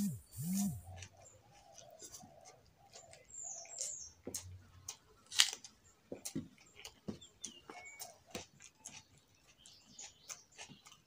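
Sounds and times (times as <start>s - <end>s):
wet mouth smacks and chewing: 8.3s - 11.0s.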